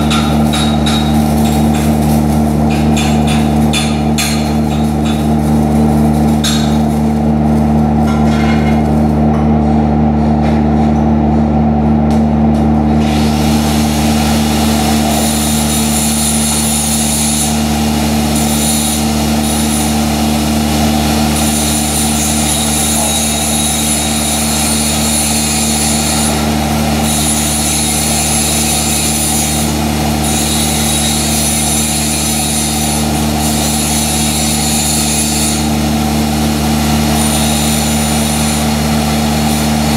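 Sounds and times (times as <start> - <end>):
hand tool scraping and tapping metal: 0.0 - 2.1, 2.7 - 5.4, 6.4 - 6.9, 8.0 - 9.4
machine hum: 0.0 - 34.8.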